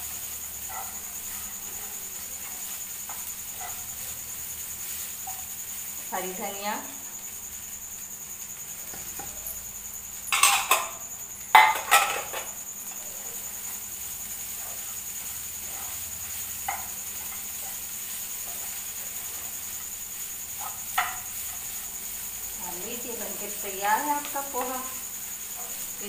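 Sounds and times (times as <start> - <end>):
spatula scraping and stirring: 0.0 - 6.1, 13.5 - 22.6
utensils knocking on frying pan: 10.3 - 12.6, 16.6 - 17.4, 20.6 - 21.4.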